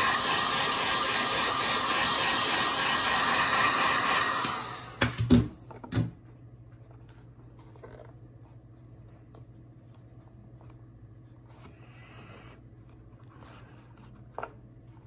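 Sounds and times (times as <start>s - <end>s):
heat gun blowing: 0.0s - 5.3s.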